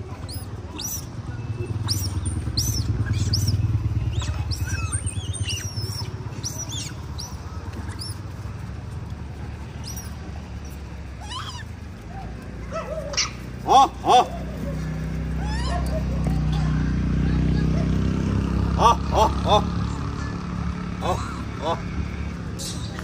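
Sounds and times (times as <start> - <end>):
monkeys squeaking: 0.0 - 8.6, 9.6 - 16.8
low engine rumble: 0.0 - 23.0.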